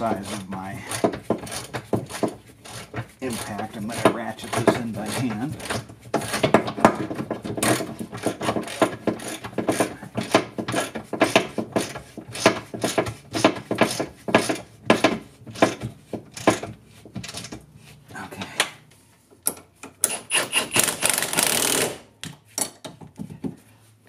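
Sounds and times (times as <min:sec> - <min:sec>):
ratchet wrench clicking: 0:20.0 - 0:22.0.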